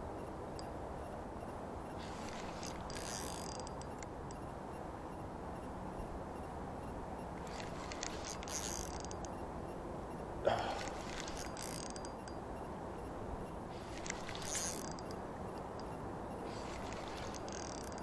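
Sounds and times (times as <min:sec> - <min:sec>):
fishing reel clicking: 0:02.0 - 0:04.1, 0:07.4 - 0:09.4, 0:10.8 - 0:12.4, 0:13.8 - 0:15.9, 0:16.5 - 0:18.0.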